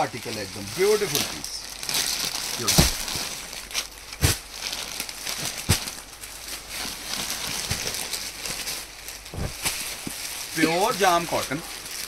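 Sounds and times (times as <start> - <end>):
plastic packaging crinkling: 0.0 - 12.0
handling knocks: 9.3 - 9.8.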